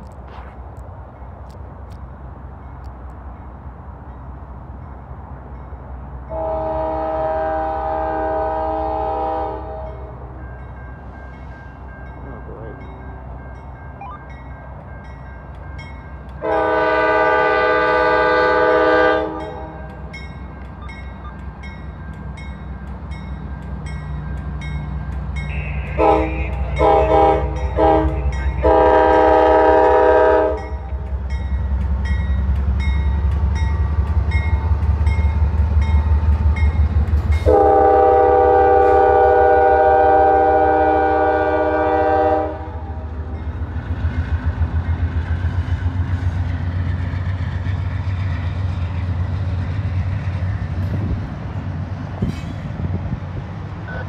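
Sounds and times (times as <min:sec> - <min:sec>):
diesel locomotive engines rumbling: 0:00.0 - 0:54.0
locomotive air horn: 0:06.3 - 0:10.1, 0:16.4 - 0:19.8, 0:25.4 - 0:30.7, 0:37.4 - 0:43.0.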